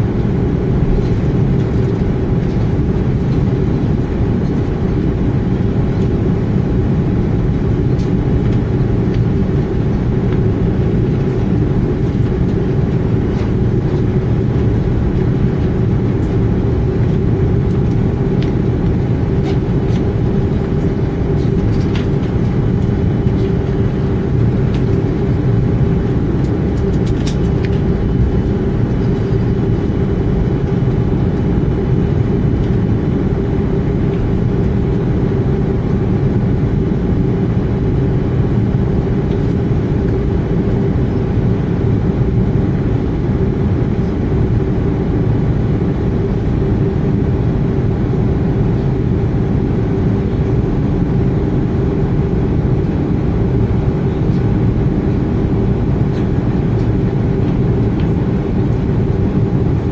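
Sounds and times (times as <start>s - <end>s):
jet engines humming: 0.0s - 59.9s
low cabin rumble: 0.0s - 59.9s.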